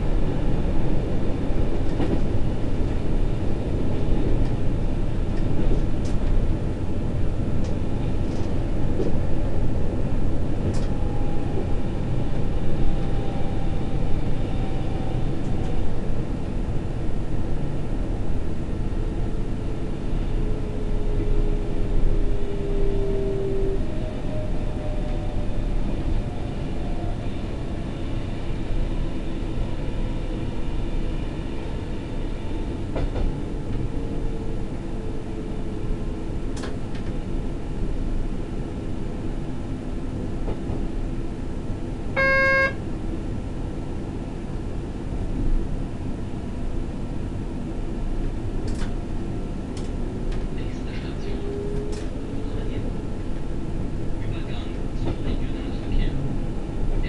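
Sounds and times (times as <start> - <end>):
electric train rumble and whine: 0.0 - 57.0
short electronic beep: 42.2 - 42.8.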